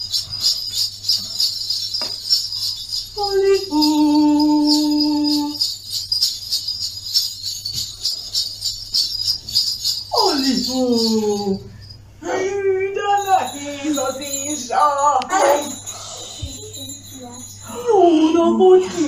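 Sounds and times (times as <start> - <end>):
jingle bells shaken: 0.0 - 19.0.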